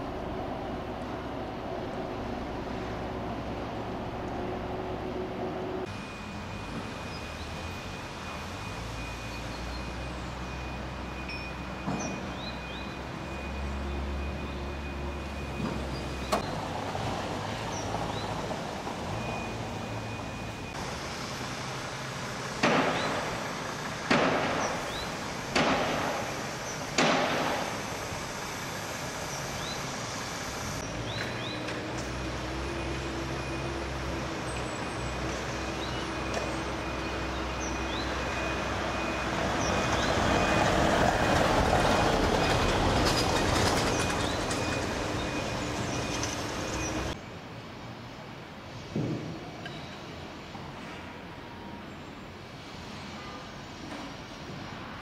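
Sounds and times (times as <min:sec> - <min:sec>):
traffic hum: 0:00.0 - 0:55.0
sharp loud bangs: 0:24.1 - 0:26.3, 0:26.9 - 0:27.8.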